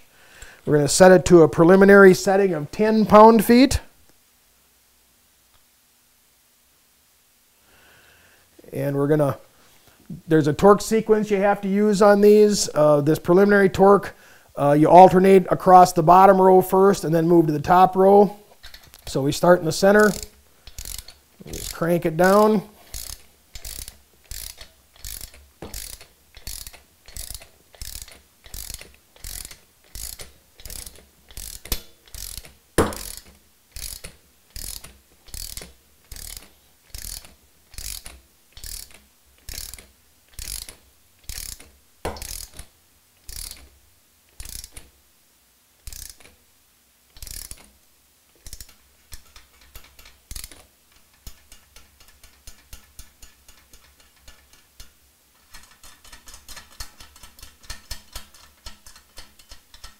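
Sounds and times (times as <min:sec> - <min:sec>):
socket ratchet clicking: 0:19.9 - 0:44.9, 0:45.8 - 0:46.4, 0:47.1 - 0:59.9.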